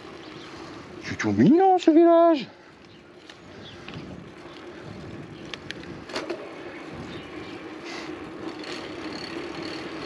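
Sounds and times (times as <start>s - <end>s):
bike tyre hum on pavement: 0.0s - 10.0s
sharp bike clicks: 2.8s - 6.5s, 7.3s - 10.0s.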